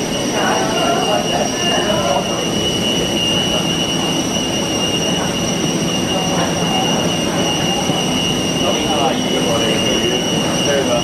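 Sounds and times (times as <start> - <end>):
machinery whir with high whine: 0.0 - 11.0.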